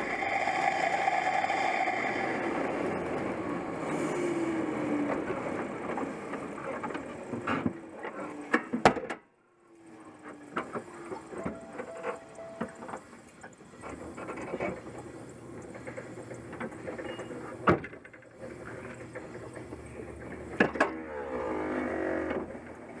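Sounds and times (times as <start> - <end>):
whine falling in pitch: 11.3 - 13.3.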